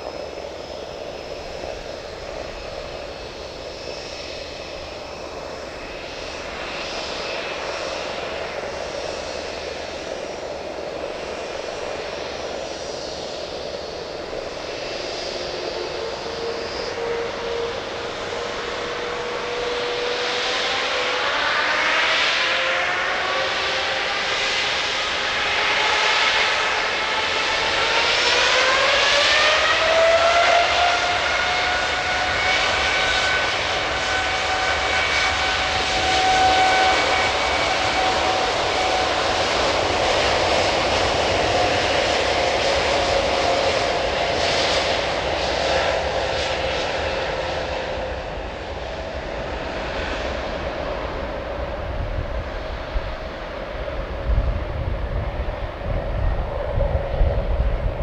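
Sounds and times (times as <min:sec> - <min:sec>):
jet engine noise: 0:00.0 - 0:58.0
jet engine whine rising: 0:00.0 - 0:58.0.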